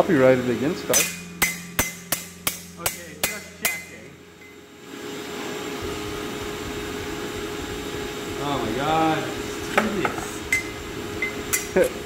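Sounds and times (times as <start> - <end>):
hammer striking steel blade: 0.9 - 4.6, 11.5 - 11.7.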